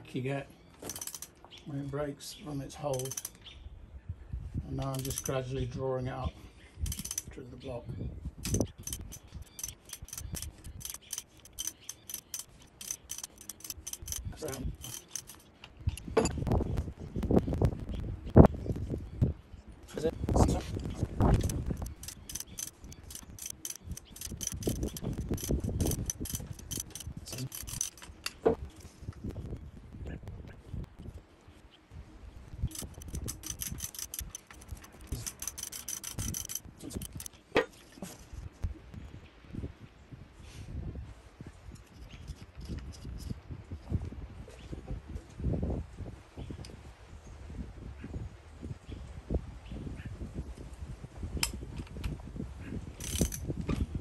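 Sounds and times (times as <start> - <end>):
ratchet wrench clicking: 0.8 - 1.3, 2.9 - 3.4, 4.8 - 5.4, 6.9 - 7.3, 8.4 - 16.3, 21.3 - 28.1, 32.7 - 37.3, 53.0 - 53.4.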